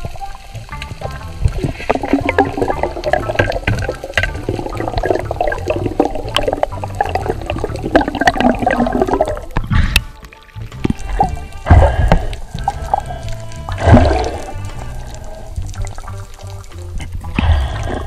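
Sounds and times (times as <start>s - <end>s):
small clicks underwater: 0.0s - 18.0s
water rushing and bubbling: 0.0s - 18.0s
sharp water splash: 10.7s - 14.9s.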